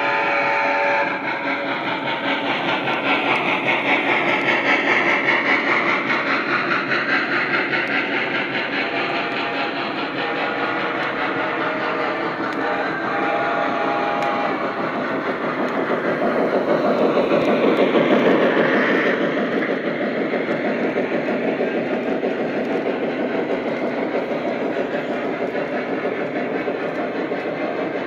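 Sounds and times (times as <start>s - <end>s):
model train rolling on track: 0.0s - 28.0s.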